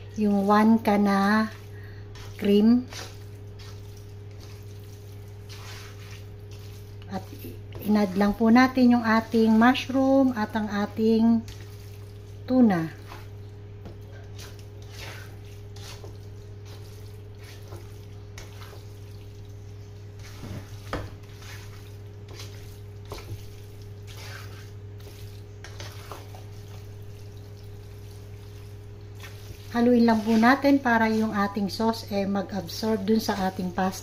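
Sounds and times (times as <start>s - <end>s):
fork stirring spaghetti in pan: 0.1s - 32.1s
fork scraping pan: 5.4s - 7.9s, 14.1s - 19.0s, 20.2s - 26.8s, 29.2s - 31.6s.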